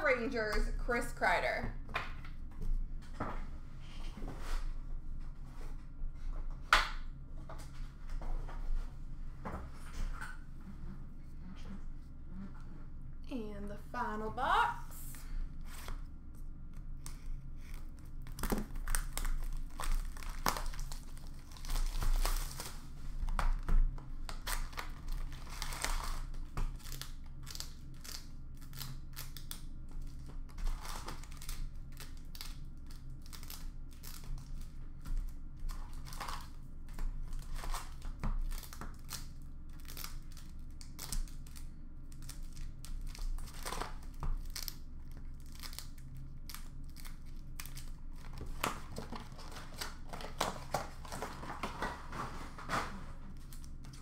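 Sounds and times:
paper and foil rustling: 0:17.6 - 0:23.4, 0:42.2 - 0:54.0.

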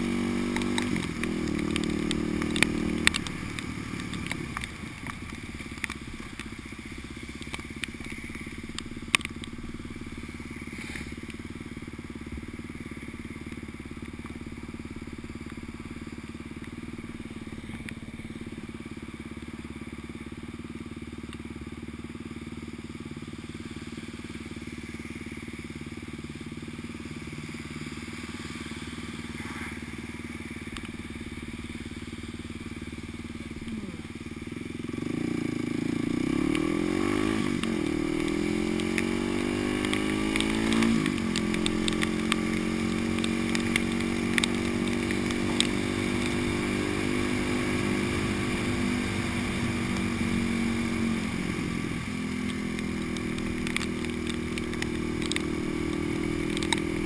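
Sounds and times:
motorcycle engine idling and revving: 0:00.0 - 0:57.0
light ticks: 0:00.5 - 0:06.6, 0:07.2 - 0:09.6, 0:30.6 - 0:31.7, 0:36.4 - 0:46.5, 0:52.2 - 0:57.0.

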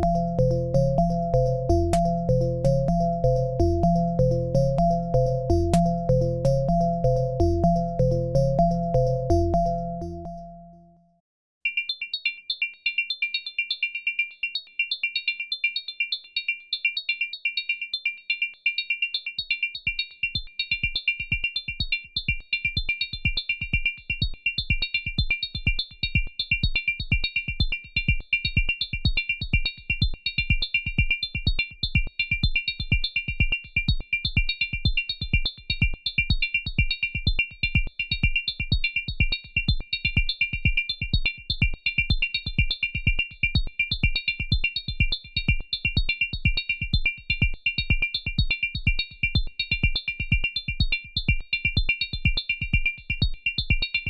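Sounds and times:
synthesizer chord stabs: 0:00.0 - 0:10.5.

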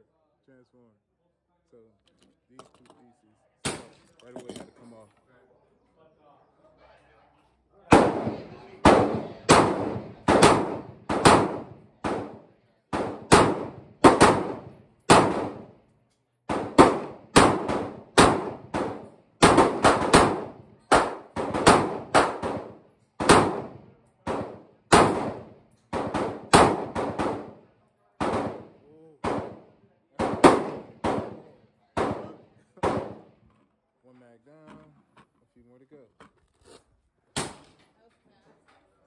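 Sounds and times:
pistol firing: 0:03.6 - 0:04.0, 0:07.9 - 0:15.7, 0:16.5 - 0:27.6, 0:28.2 - 0:33.3, 0:37.4 - 0:37.8.

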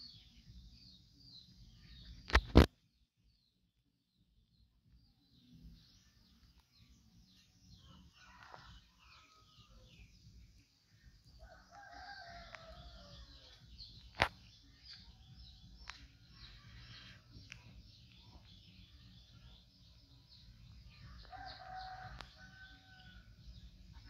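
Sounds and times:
small birds chirping: 0:00.0 - 0:24.0
sharp click: 0:02.2 - 0:02.7
faint rooster crowing: 0:07.7 - 0:10.2, 0:11.4 - 0:13.6, 0:20.9 - 0:23.6.

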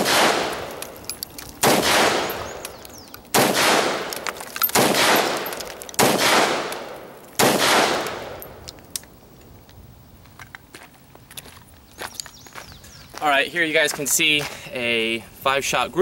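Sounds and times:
rifle shots with long echo: 0:00.0 - 0:01.0, 0:01.6 - 0:08.7.

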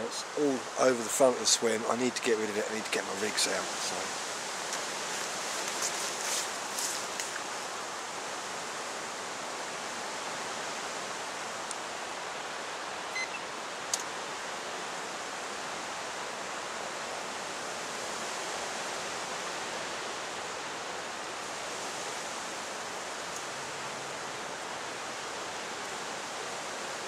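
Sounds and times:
breeze through reeds and trees: 0:00.0 - 0:27.0
short squeak: 0:13.2 - 0:13.5.

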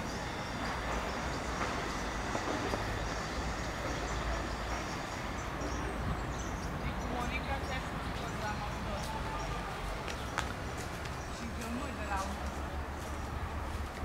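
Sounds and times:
traffic rumble: 0:00.0 - 0:14.0.

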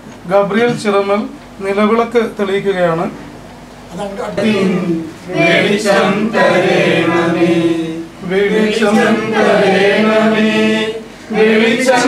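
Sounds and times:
group singing a hymn: 0:04.4 - 0:12.0.

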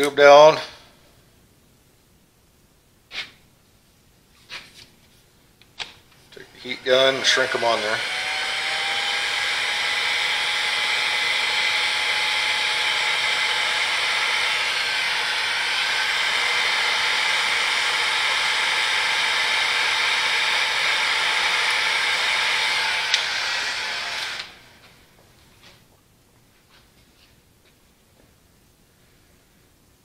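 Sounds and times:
heat gun blowing air: 0:06.4 - 0:24.8.

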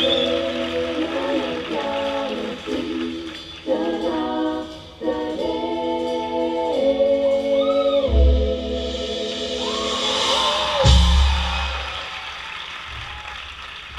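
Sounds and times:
deep bass hit: 0:08.4 - 0:12.0.

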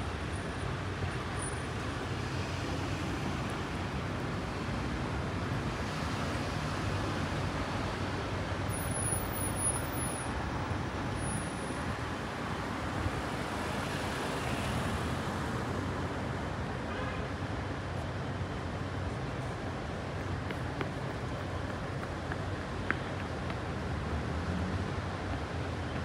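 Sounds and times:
cars driving past: 0:23.6 - 0:25.5.

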